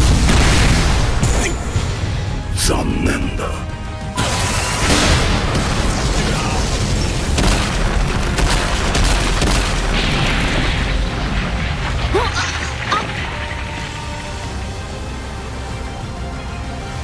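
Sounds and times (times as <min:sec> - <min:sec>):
explosion blast: 0:00.0 - 0:02.3, 0:04.2 - 0:14.1.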